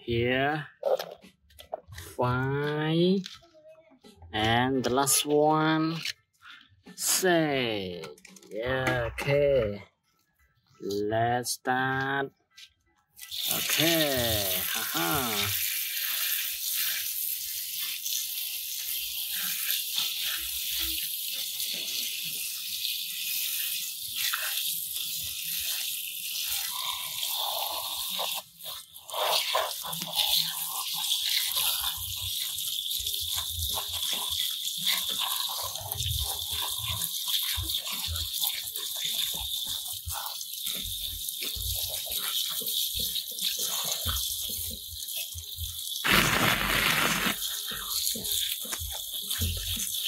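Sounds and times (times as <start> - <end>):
water splashing off toys: 13.2 - 50.0
water sprayer hissing: 13.2 - 50.0.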